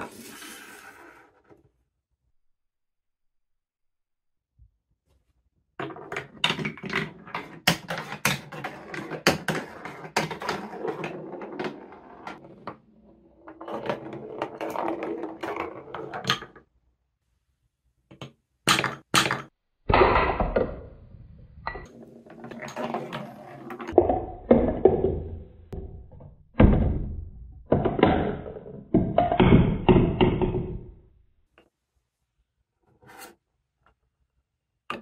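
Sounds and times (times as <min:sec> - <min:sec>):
wooden ball rolling on track: 0:05.8 - 0:16.6, 0:21.8 - 0:26.2.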